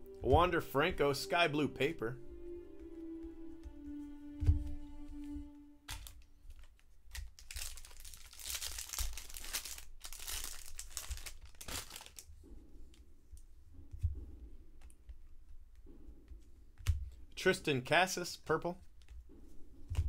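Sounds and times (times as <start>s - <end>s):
foil wrapper crinkling: 5.9s - 12.3s.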